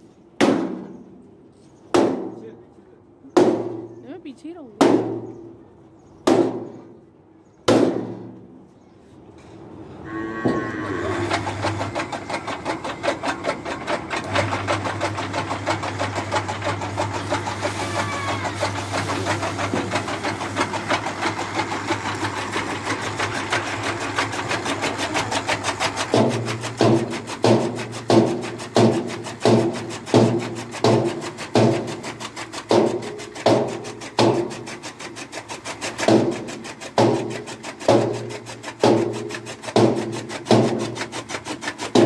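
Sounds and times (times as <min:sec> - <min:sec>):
sharp knocks: 0:00.4 - 0:00.9, 0:01.9 - 0:02.4, 0:03.4 - 0:03.9, 0:04.8 - 0:05.3, 0:06.2 - 0:06.8, 0:07.6 - 0:08.4, 0:26.1 - 0:32.0, 0:32.7 - 0:34.6, 0:36.0 - 0:41.1
chaff cutter clattering: 0:11.2 - 0:42.0.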